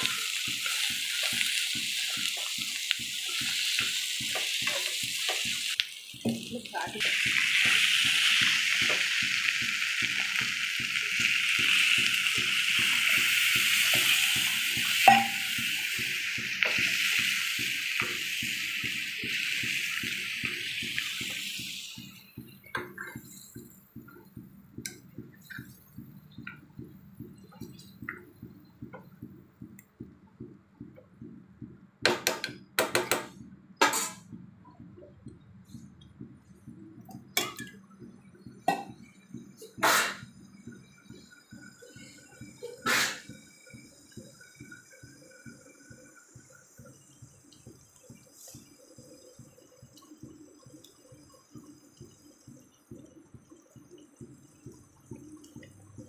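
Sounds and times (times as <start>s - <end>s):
water pouring into a pan: 0.0s - 23.6s
faint regular ticking: 21.9s - 32.8s.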